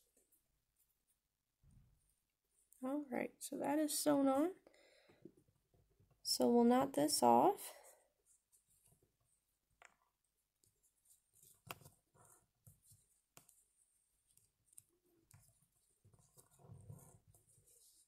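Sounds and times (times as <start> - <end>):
faint ticks and rustles of hands: 7.8 - 18.0.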